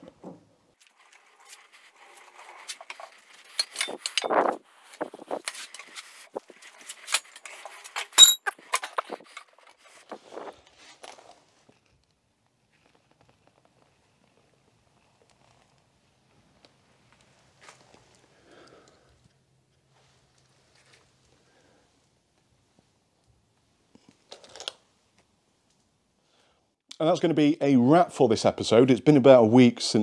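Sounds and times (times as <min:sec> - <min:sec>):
metal knocks and clinks: 0:08.2 - 0:09.0.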